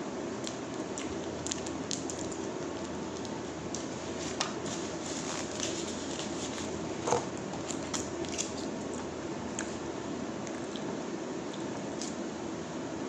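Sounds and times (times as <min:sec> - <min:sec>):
plastic sachet crinkling and tearing: 0:00.5 - 0:06.7
paper bag crackling: 0:00.8 - 0:08.7.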